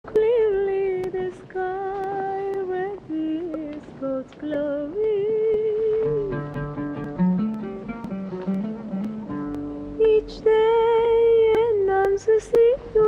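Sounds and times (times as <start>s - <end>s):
woman singing with vibrato: 0.1s - 6.6s, 10.0s - 13.0s
plucked guitar notes: 6.0s - 13.0s.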